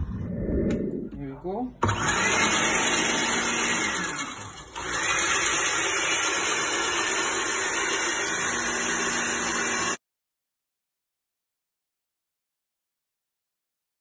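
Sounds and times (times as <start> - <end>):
blender motor running: 1.8 - 10.0.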